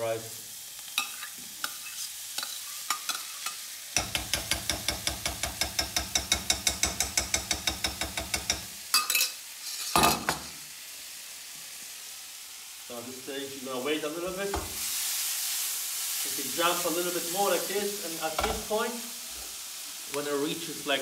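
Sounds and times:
frying sizzle: 0:00.0 - 0:21.0
spatula stirring in a wok: 0:00.9 - 0:08.7
metal cookware clanks: 0:02.4 - 0:10.5.

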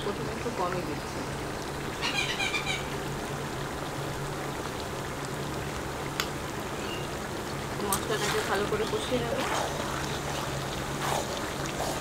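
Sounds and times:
onions frying in hot oil: 0:00.0 - 0:12.0
high chirping calls: 0:02.0 - 0:02.9.

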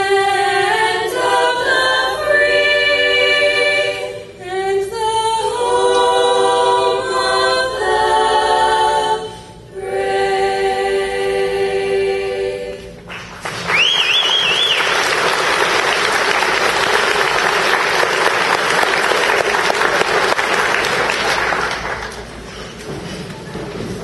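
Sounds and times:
choir singing: 0:00.0 - 0:13.1
audience applauding: 0:13.1 - 0:22.4
wavering whistle: 0:13.7 - 0:15.0.

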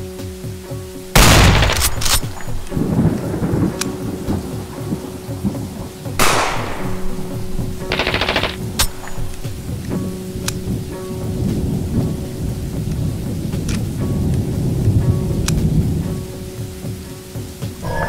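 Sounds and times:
low drone: 0:00.0 - 0:16.9, 0:17.7 - 0:18.0
steady rain: 0:00.0 - 0:18.0
rapid gunfire: 0:01.2 - 0:02.4, 0:06.2 - 0:07.1, 0:07.8 - 0:09.3
thunder crash: 0:01.2 - 0:16.2.

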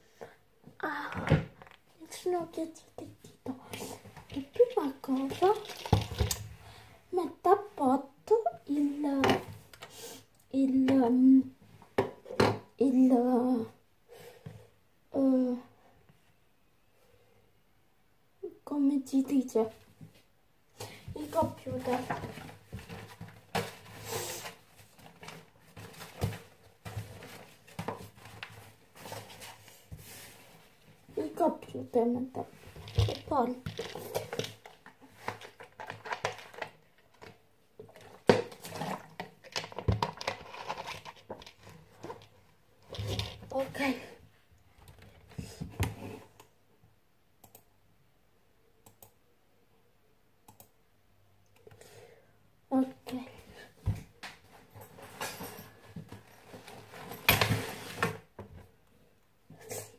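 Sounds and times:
computer mouse clicks: 0:50.5 - 0:50.7.

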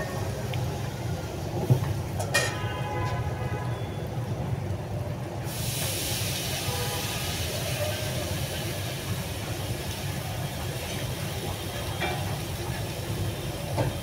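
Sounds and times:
batter sizzling in hot oil: 0:05.4 - 0:14.0.

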